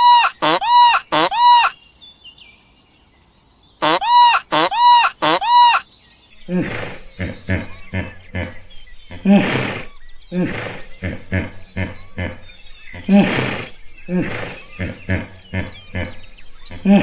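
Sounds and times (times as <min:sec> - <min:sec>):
bird honking loudly: 0:00.0 - 0:01.8, 0:03.8 - 0:05.8
hippopotamus grunts and snorts: 0:06.4 - 0:17.0.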